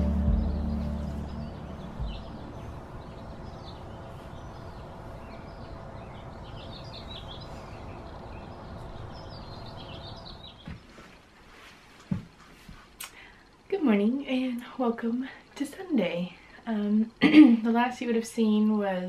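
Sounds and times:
outdoor background hiss: 0:00.0 - 0:19.0
small birds chirping: 0:00.3 - 0:11.0.

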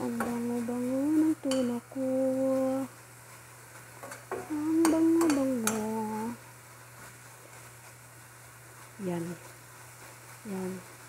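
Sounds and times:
person humming: 0:00.0 - 0:02.9, 0:04.4 - 0:06.4
faint sizzle: 0:00.0 - 0:11.0
spoon clicking on pan: 0:01.4 - 0:01.7, 0:04.0 - 0:05.9
metal spoon scraping a pan: 0:04.0 - 0:05.9.

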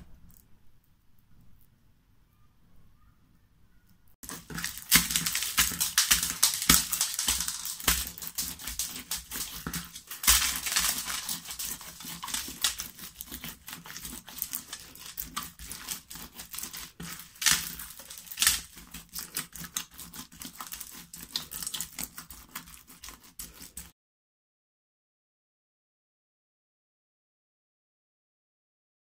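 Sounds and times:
slime popping: 0:04.2 - 0:21.9.

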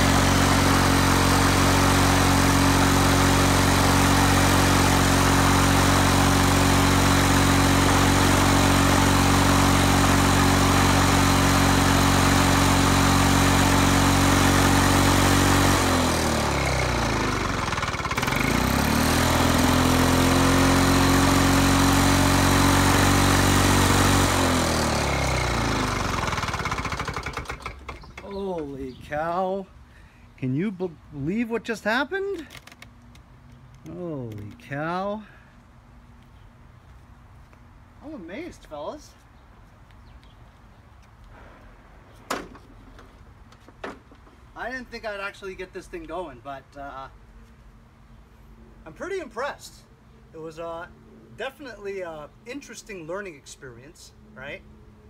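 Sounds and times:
push mower engine running: 0:00.0 - 0:29.0.

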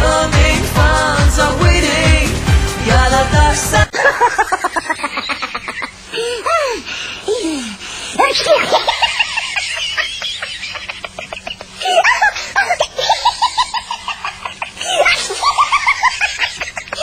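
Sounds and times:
high-pitched laughter: 0:03.9 - 0:06.8, 0:08.2 - 0:17.0.

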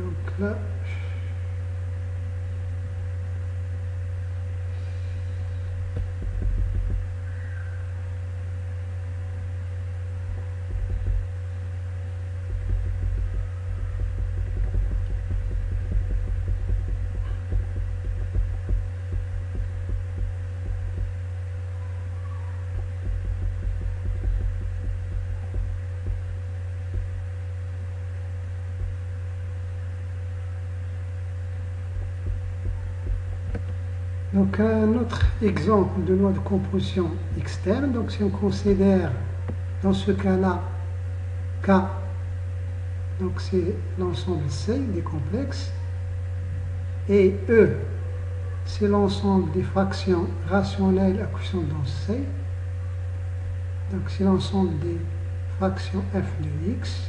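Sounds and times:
steady low hum: 0:00.0 - 0:57.0
soft low thumps: 0:01.0 - 0:40.0.

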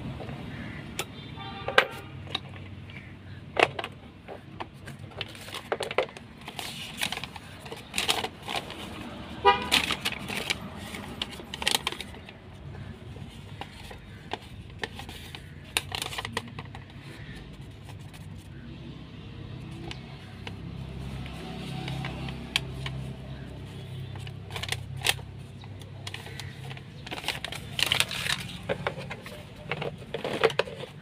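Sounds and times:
low traffic rumble: 0:00.0 - 0:31.0
tools and plastic case clicking: 0:00.2 - 0:09.0, 0:13.0 - 0:17.1, 0:19.7 - 0:31.0
vehicle horn toot: 0:01.2 - 0:02.2, 0:09.4 - 0:09.7
paper leaflet rustling: 0:04.3 - 0:18.6, 0:19.6 - 0:31.0.

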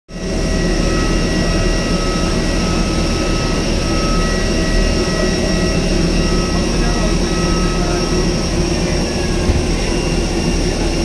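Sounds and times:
airliner rushing hum: 0:00.2 - 0:11.0.

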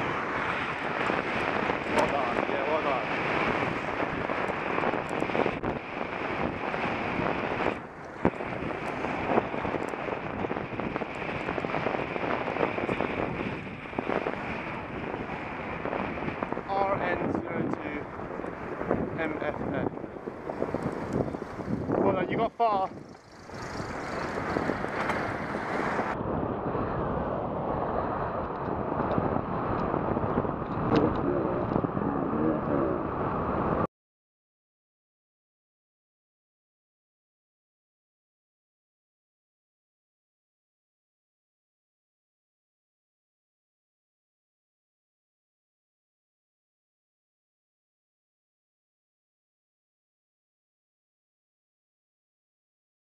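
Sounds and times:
road and traffic noise: 0:00.0 - 0:33.9
wind buffeting microphone: 0:00.0 - 0:33.9.

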